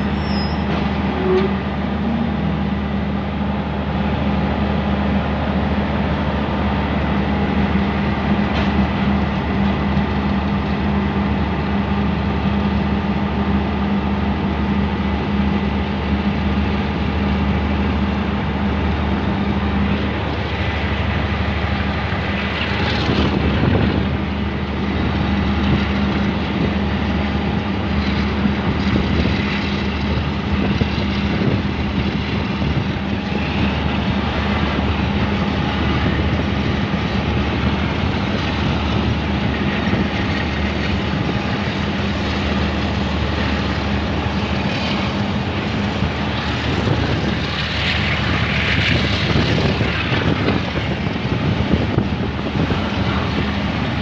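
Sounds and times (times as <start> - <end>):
diesel engine drone: 0.0 - 54.0
wheels running on rails: 3.7 - 54.0
wind rushing past microphone: 19.2 - 54.0.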